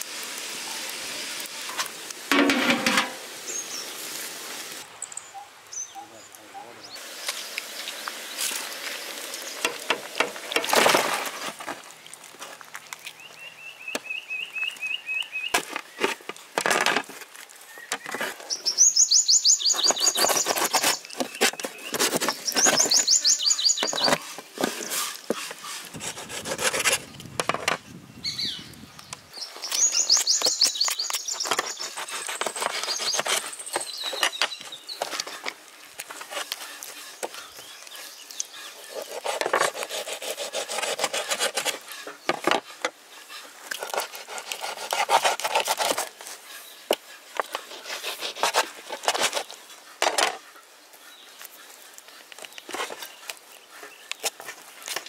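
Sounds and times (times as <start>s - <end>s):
knife sawing and scraping meat: 19.8s - 27.0s, 30.1s - 35.5s, 36.1s - 49.6s.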